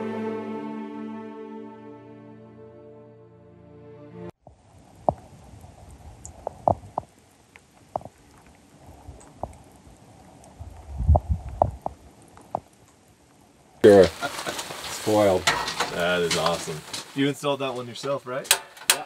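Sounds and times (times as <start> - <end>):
steady hiss: 13.8 - 18.6.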